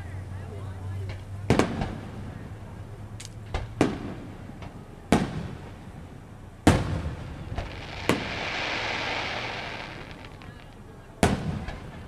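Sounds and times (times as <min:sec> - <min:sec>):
steady hiss: 0:07.0 - 0:11.4
firework shells bursting: 0:07.5 - 0:11.4.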